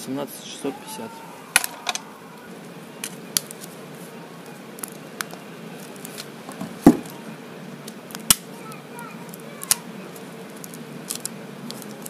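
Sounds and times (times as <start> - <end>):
plastic rustling: 1.6 - 12.0.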